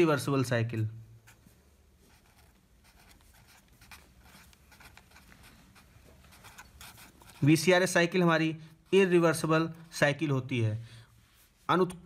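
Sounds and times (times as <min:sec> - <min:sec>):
marker scratching on paper: 0:01.2 - 0:07.7.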